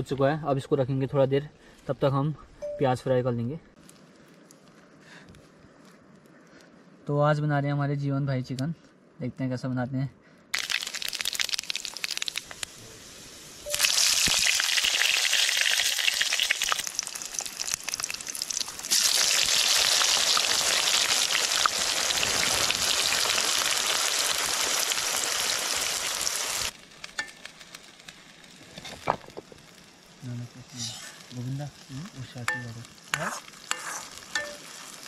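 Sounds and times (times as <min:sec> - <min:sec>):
hot oil sizzling: 0:10.6 - 0:35.0.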